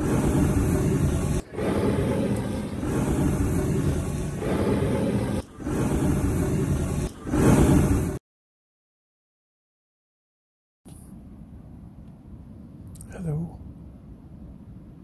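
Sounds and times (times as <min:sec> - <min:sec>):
blowtorch flame rushing: 0:00.0 - 0:08.2.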